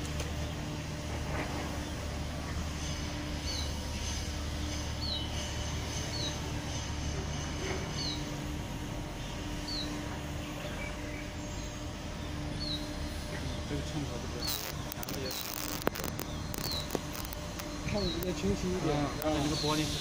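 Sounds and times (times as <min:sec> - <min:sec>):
steady low hum: 0:00.0 - 0:20.0
bird chirping: 0:02.8 - 0:06.6, 0:07.9 - 0:08.4, 0:09.2 - 0:13.6, 0:14.3 - 0:19.9.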